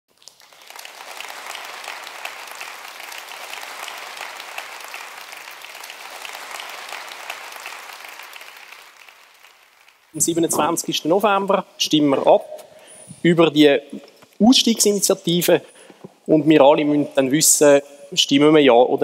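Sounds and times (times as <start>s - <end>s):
audience applauding: 0.1s - 11.4s.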